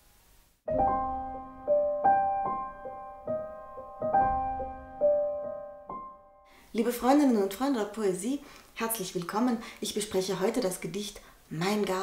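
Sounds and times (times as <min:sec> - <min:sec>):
solo piano phrase: 0:00.7 - 0:06.5.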